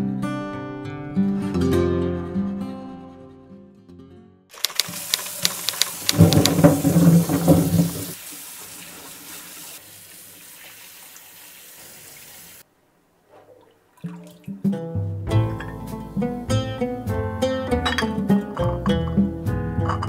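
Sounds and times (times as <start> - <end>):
tap water running into sink: 4.6 - 12.6.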